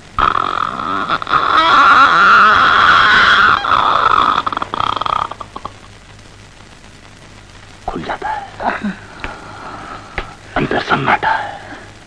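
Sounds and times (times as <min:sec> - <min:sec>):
man imitating door creak: 0:00.2 - 0:05.8.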